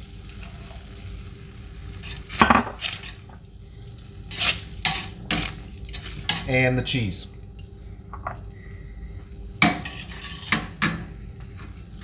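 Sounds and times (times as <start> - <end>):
metal tongs clanking on skillet: 4.3 - 6.6, 9.6 - 11.1.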